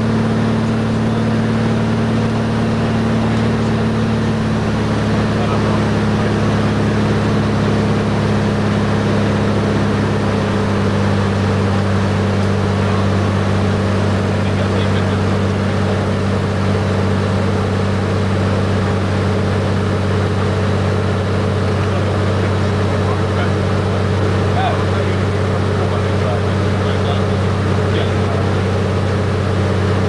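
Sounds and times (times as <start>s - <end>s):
light aircraft engine drone: 0.0s - 30.0s.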